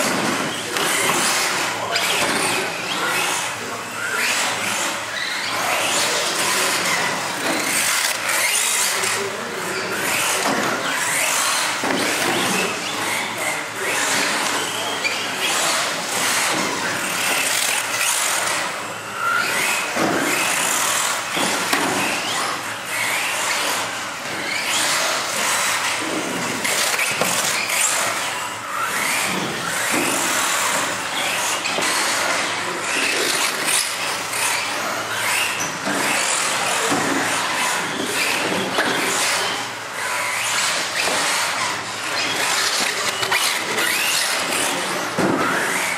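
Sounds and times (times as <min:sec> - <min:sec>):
model car motors whining: 0:00.0 - 0:45.9.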